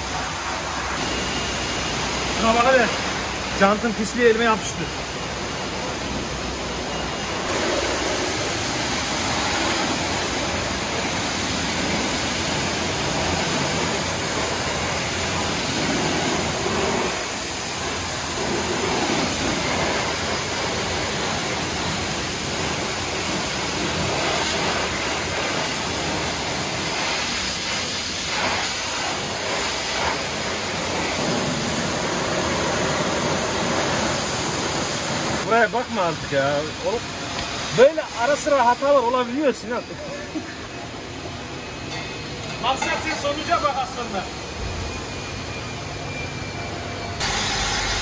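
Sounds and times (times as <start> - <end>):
pressure washer spraying water: 0.0 - 41.6, 47.2 - 48.0.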